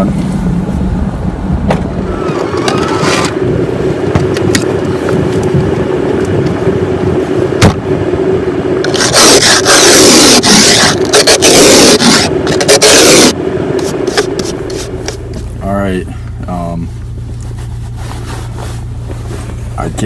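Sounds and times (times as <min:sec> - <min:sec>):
steady hum: 0:00.0 - 0:20.0
sharp thump: 0:01.6 - 0:02.8, 0:07.6 - 0:07.8
ice scraper scraping windshield: 0:02.1 - 0:03.4, 0:08.8 - 0:15.5.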